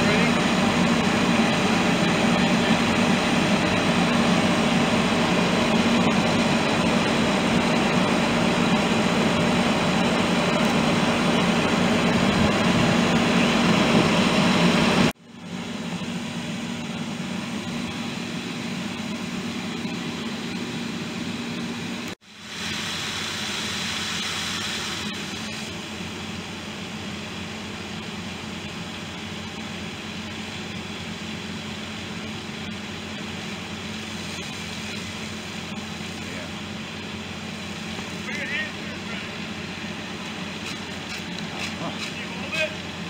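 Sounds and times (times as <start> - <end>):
fire engine pump running: 0.0 - 43.0
high-pressure water stream rushing: 22.2 - 26.1.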